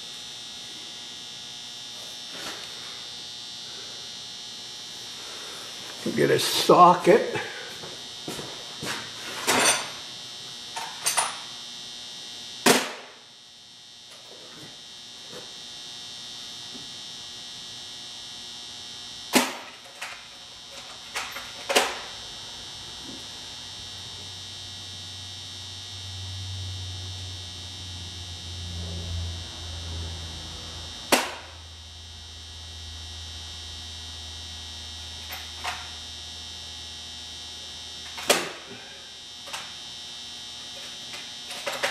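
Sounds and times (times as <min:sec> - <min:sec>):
high-pitched electrical whine: 0:00.0 - 0:41.9
low hum: 0:20.7 - 0:39.7.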